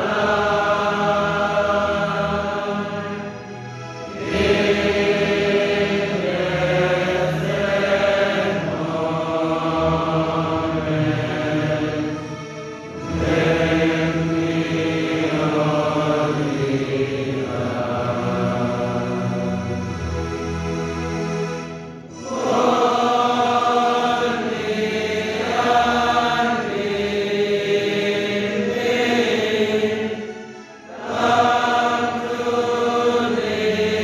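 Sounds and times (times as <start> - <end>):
group chanting a sung prayer: 0.0 - 3.2, 4.1 - 12.2, 13.0 - 19.2, 22.2 - 34.0.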